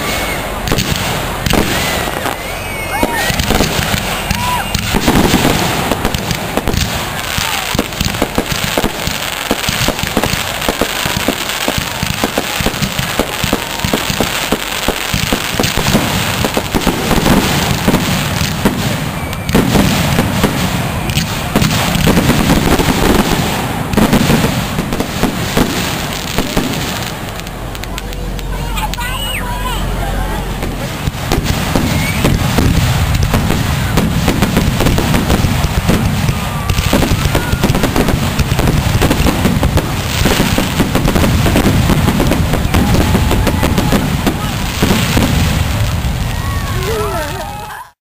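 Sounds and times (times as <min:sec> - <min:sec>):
fireworks bangs and crackle: 0:00.0 - 0:48.0.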